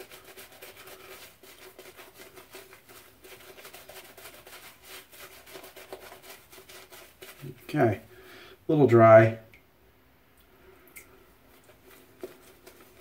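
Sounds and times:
shaving brush lathering soap: 0.0s - 7.8s, 11.6s - 13.0s.

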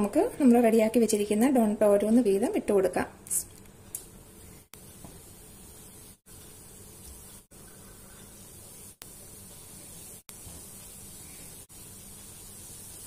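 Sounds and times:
food sizzling in hot oil: 4.3s - 13.0s.

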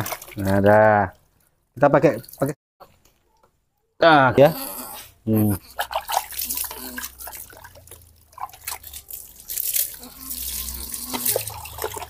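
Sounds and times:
water splashing and dripping: 0.0s - 2.6s, 5.6s - 12.0s.

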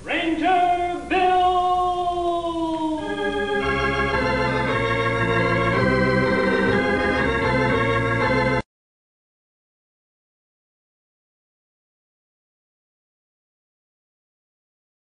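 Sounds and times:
organ music: 0.0s - 8.7s.

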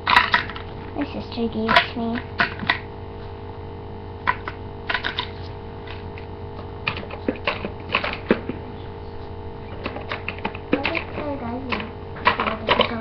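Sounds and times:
steady hum: 0.0s - 13.0s
plastic toy clicks and taps: 9.8s - 12.9s.

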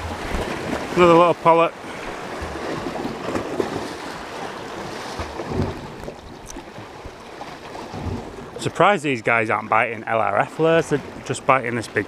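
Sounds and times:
waves washing against rocks: 0.0s - 8.6s.

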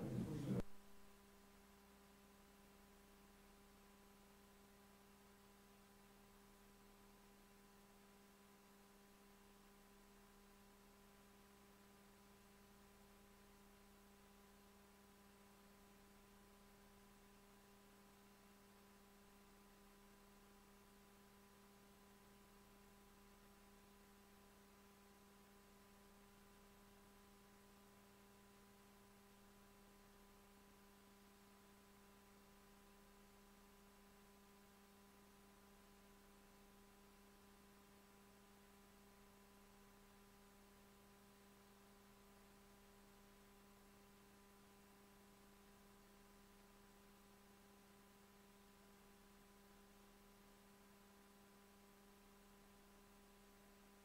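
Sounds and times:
faint steady tonal hum: 0.0s - 1.2s.

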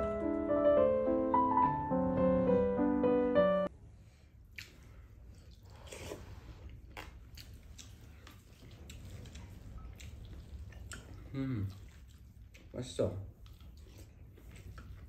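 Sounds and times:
person chewing: 4.5s - 15.0s.

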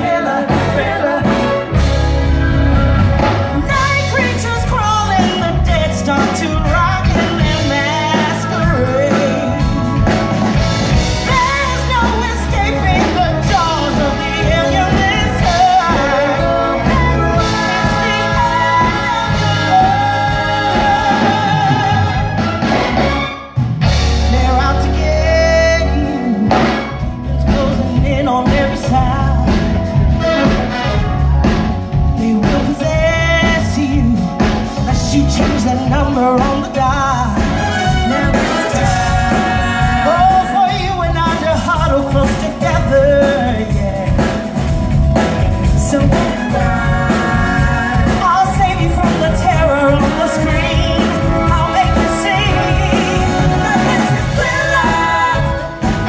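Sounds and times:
person singing into microphone: 0.0s - 1.9s, 3.5s - 10.1s, 11.0s - 22.4s, 24.1s - 30.0s, 32.1s - 44.7s, 45.6s - 56.0s
drums: 0.0s - 56.0s
electric guitar: 0.0s - 56.0s.

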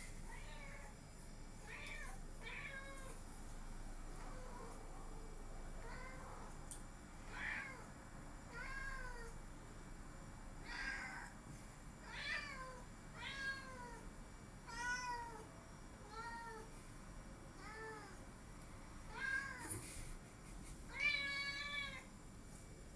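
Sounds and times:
cat meowing: 20.9s - 22.1s.

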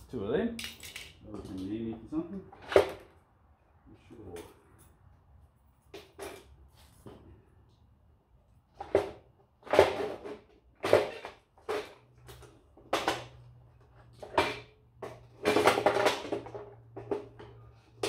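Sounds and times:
plastic parts clacking: 0.6s - 1.7s.

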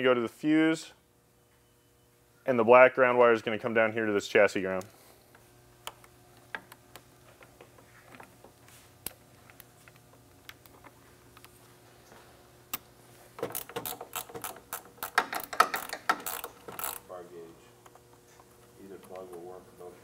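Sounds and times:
ratcheting clicks: 13.4s - 17.1s.

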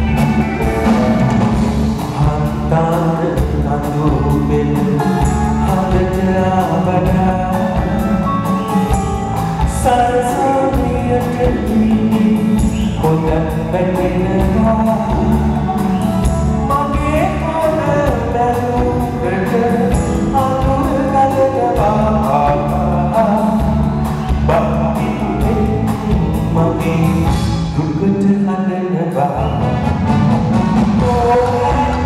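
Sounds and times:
live band playing: 0.0s - 32.0s
man singing into microphone: 1.9s - 29.9s, 30.9s - 32.0s.

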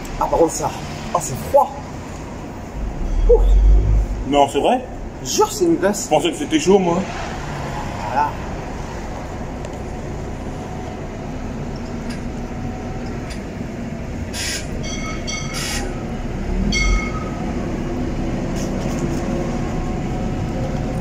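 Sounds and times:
passing vehicle rumble: 0.6s - 14.2s
high-pitched squeaks: 2.9s - 4.2s, 14.4s - 16.0s.

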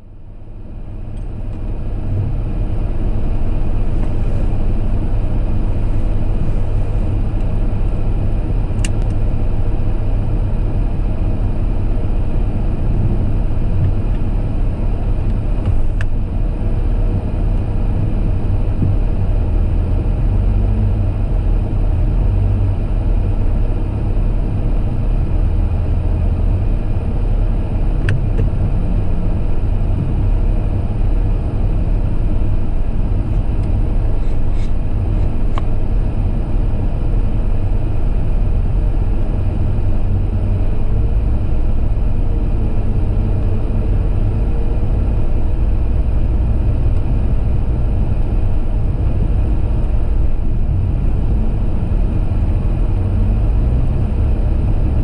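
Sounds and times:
car driving in the rain: 0.5s - 55.0s.

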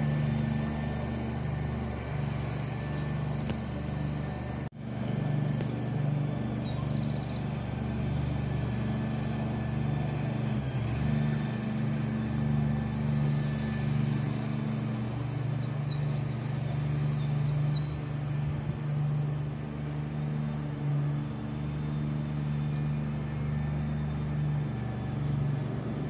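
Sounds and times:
small birds chirping: 6.0s - 7.6s, 14.2s - 18.7s.

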